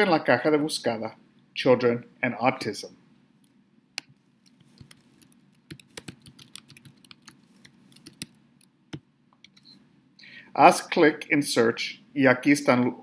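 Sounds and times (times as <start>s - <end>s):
computer keyboard typing: 4.4s - 9.8s.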